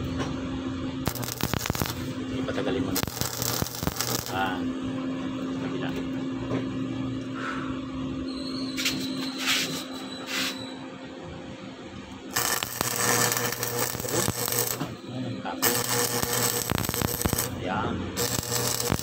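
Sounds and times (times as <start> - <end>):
arc welding crackling: 1.0 - 4.7, 12.2 - 19.0.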